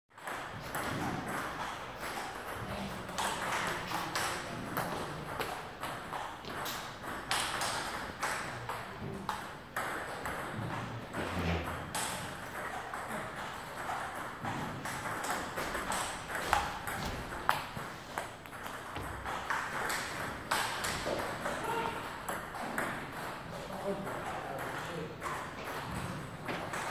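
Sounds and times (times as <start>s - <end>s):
table tennis ball clicking: 0.2s - 10.8s.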